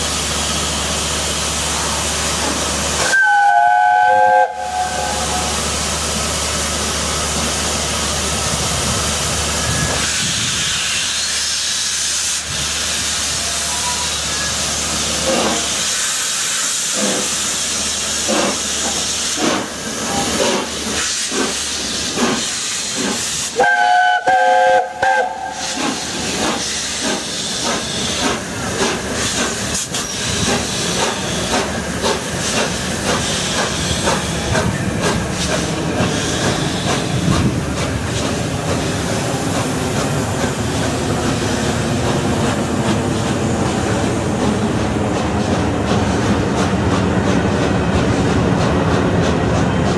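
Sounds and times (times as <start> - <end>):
steam hissing: 0.0 - 49.1
steam locomotive exhaust chuffs: 0.0 - 49.9
train whistle blast: 3.0 - 5.6, 23.5 - 25.8.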